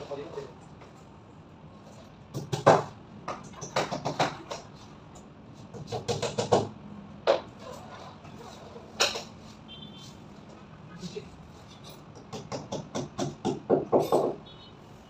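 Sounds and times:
hammer tapping on wall panel: 2.3s - 4.7s, 5.7s - 6.7s, 12.2s - 14.4s.

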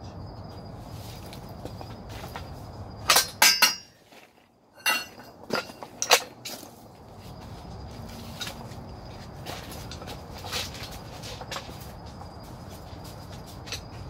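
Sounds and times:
metal tools clanking: 3.0s - 4.0s, 4.8s - 6.7s.

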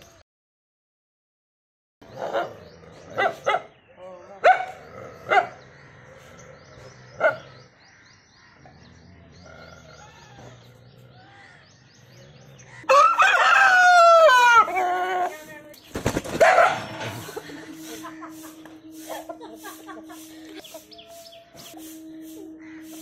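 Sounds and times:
dog barking: 3.2s - 3.7s, 4.4s - 5.6s, 7.2s - 7.5s, 16.4s - 17.3s
rooster crowing: 12.9s - 15.1s.

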